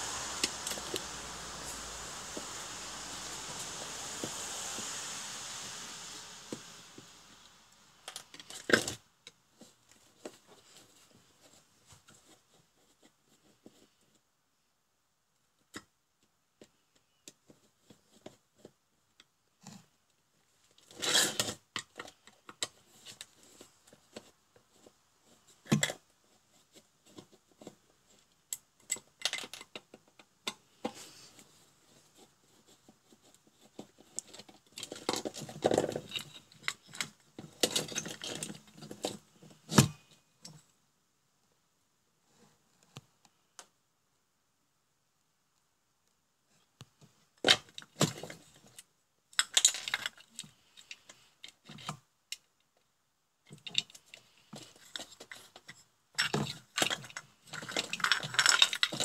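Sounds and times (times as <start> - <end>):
parts clattering: 53.6 - 59.0
plastic case handling noise: 53.6 - 59.0.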